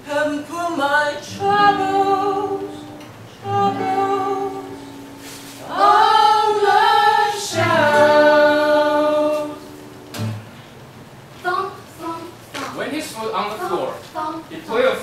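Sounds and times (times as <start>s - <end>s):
voices singing blues: 0.0s - 9.9s.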